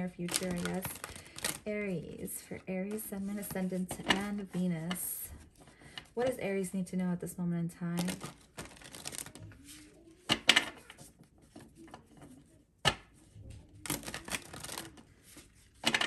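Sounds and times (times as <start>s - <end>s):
cards riffling and rustling: 0.2s - 1.7s, 8.0s - 13.0s, 13.7s - 16.0s
cards snapping: 8.0s - 9.4s, 13.8s - 15.0s.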